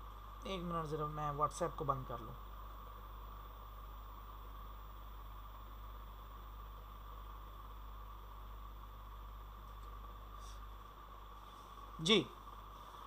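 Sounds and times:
faint steady hiss: 0.0 - 13.0
low hum: 0.0 - 13.0.

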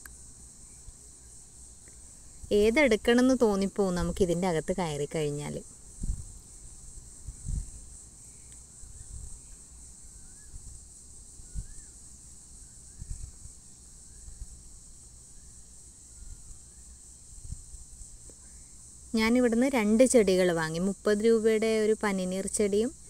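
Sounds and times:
insects droning: 0.0 - 23.0
faint bird chirps: 8.2 - 10.7, 11.4 - 14.5, 15.3 - 17.0.

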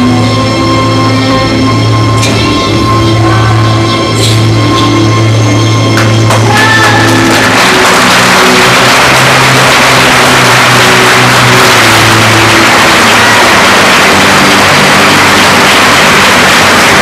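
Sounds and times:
low sustained music tones: 0.0 - 17.0
steady rushing noise: 7.7 - 17.0.

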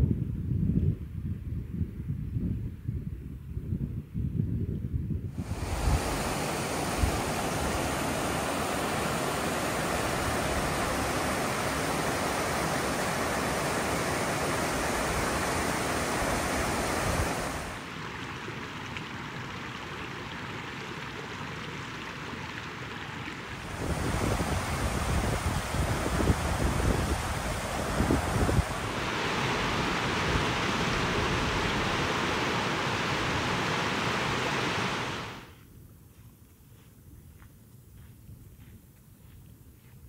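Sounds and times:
wind buffeting microphone: 0.0 - 17.8, 23.6 - 33.6
stream water rushing: 5.4 - 35.6.

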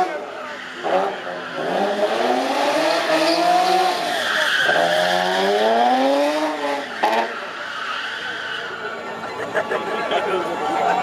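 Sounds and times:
car engine revving: 0.0 - 8.0.

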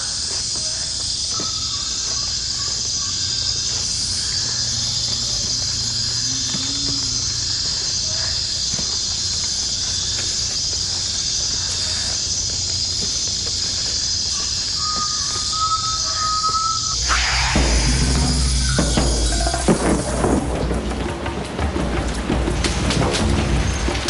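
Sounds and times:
insects chirping: 0.0 - 24.0
whistled tone: 14.3 - 20.4
low hum: 16.2 - 24.0
deep rumble: 16.9 - 24.0.

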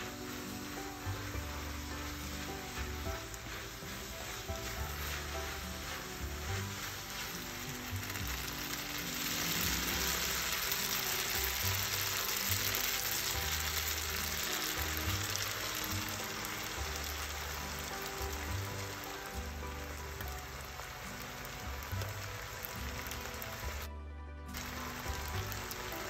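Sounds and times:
spaghetti sizzling in a pan: 0.0 - 23.9, 24.5 - 26.0
soft background music: 0.0 - 26.0.

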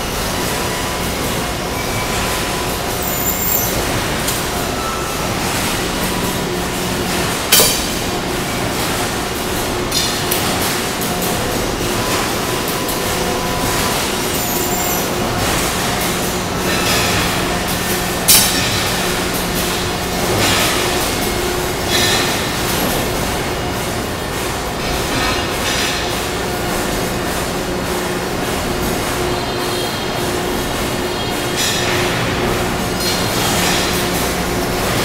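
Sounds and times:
sharp metallic clanks: 7.5 - 8.0.

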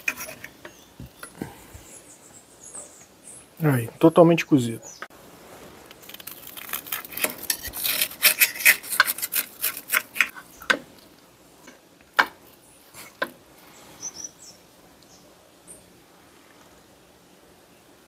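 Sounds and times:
knife sawing through crispy skin: 6.0 - 10.3.

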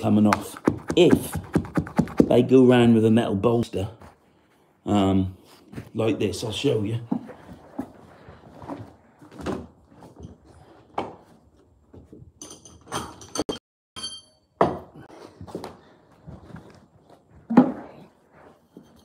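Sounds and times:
metallic ringing clink: 12.4 - 14.6.

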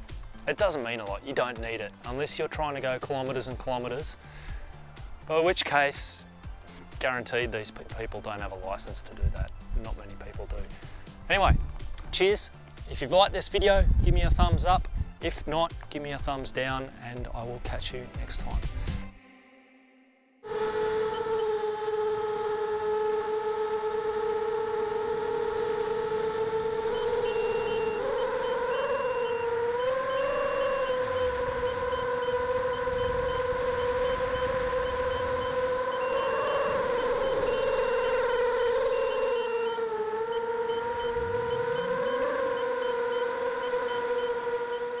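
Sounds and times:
drone motors whining: 20.4 - 45.0.

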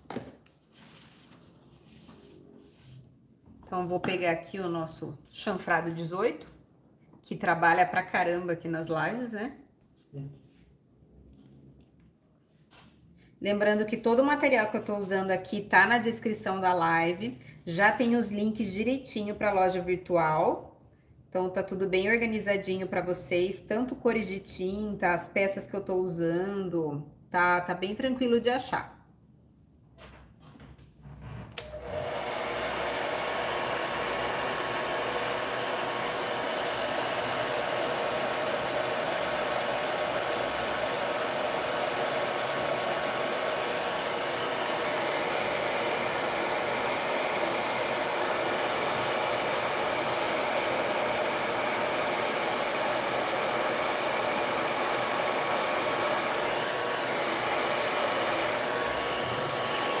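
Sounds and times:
hair dryer blowing: 4.0 - 4.5, 31.6 - 60.0.

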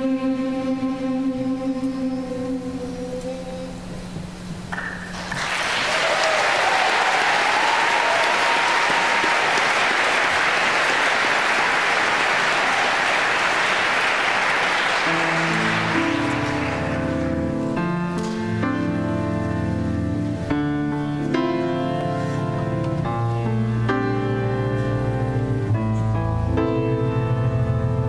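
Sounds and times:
instrumental music: 0.0 - 4.8, 14.9 - 28.0
audience applauding: 4.8 - 17.6.

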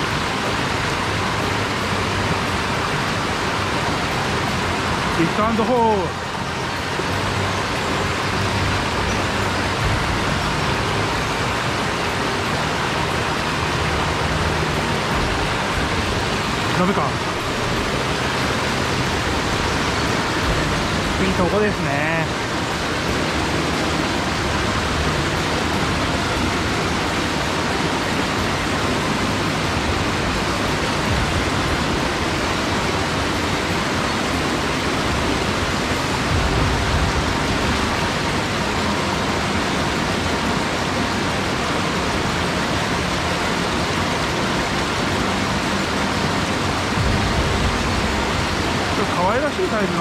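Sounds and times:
mountain stream flowing: 0.0 - 50.0
low rumble: 46.2 - 49.0.

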